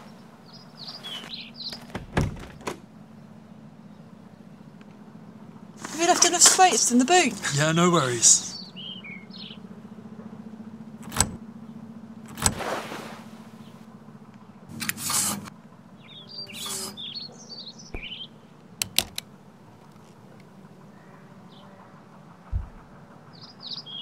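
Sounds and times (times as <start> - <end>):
birds chirping: 0.0 - 12.4, 13.2 - 24.0
steady low hum: 0.0 - 24.0
wheelchair folding clicks and knocks: 18.8 - 19.2.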